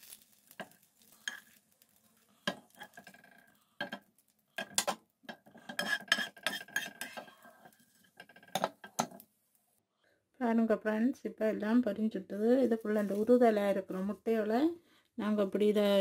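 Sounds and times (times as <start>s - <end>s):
spoon scraping frying pan: 0.1s - 9.2s
tongs clicking on frying pan: 8.3s - 9.2s.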